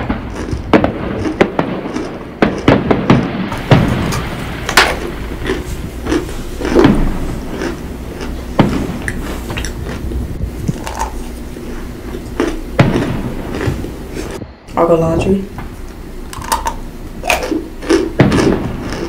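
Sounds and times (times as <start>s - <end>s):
fireworks bangs and crackles: 0.0s - 10.6s, 12.8s - 13.9s, 18.2s - 18.9s
crunching bites: 0.0s - 14.4s, 16.3s - 19.0s.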